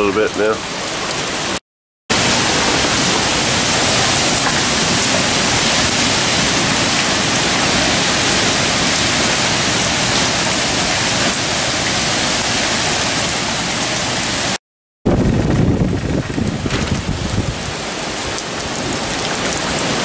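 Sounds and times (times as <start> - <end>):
heavy rain pouring: 0.0 - 20.0
wind rumbling: 0.7 - 11.2, 15.1 - 20.0.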